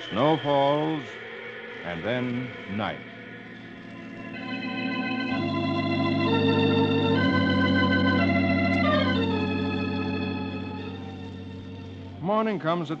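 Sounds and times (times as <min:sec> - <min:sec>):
organ playing sustained chords: 0:00.0 - 0:13.0.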